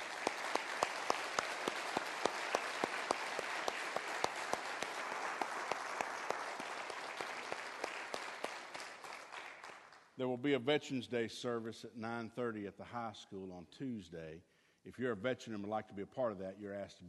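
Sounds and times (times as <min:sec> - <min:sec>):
nearby hands clapping: 0:00.0 - 0:10.0
congregation applauding: 0:00.0 - 0:10.2.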